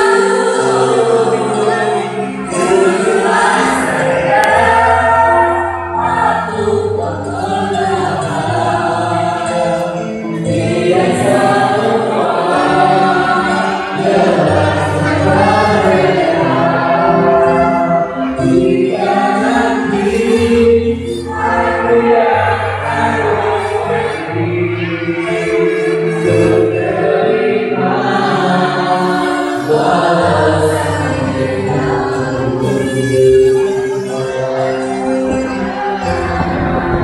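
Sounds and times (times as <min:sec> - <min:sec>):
choir singing: 0:00.0 - 0:37.0
low bass notes: 0:36.0 - 0:37.0.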